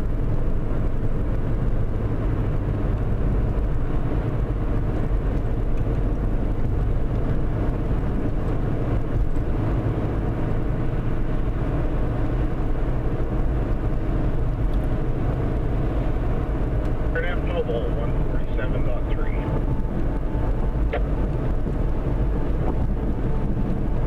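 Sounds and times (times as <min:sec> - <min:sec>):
car cabin road and engine drone: 0:00.0 - 0:24.0.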